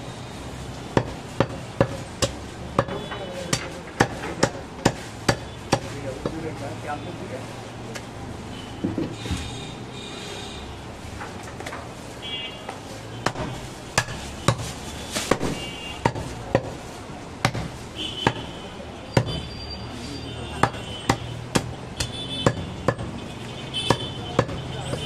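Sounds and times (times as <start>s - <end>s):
knife chopping meat and bone: 1.0s - 6.4s, 13.2s - 14.7s, 15.3s - 16.8s, 17.4s - 18.5s, 19.2s - 19.5s, 20.6s - 23.2s, 23.9s - 25.0s.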